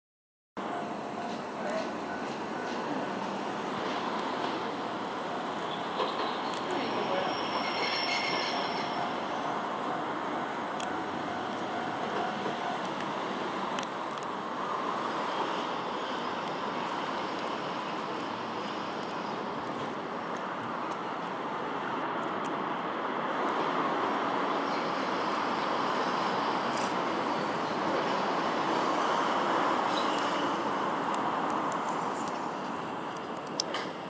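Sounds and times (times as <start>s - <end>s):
diesel railcar running: 0.6s - 34.0s.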